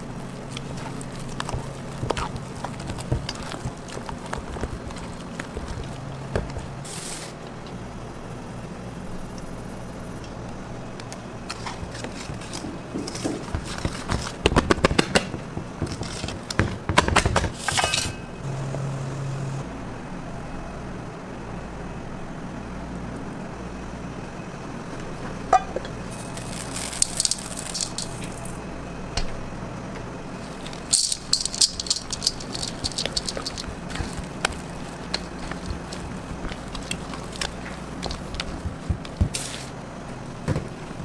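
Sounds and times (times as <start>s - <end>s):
utensil mixing batter in bowl: 0.0s - 7.6s, 11.5s - 14.7s, 26.1s - 28.6s, 30.4s - 39.8s
low steady hum: 0.0s - 16.9s, 17.8s - 41.0s
whisk rattling against steel bowl: 27.0s - 28.6s, 30.6s - 39.3s.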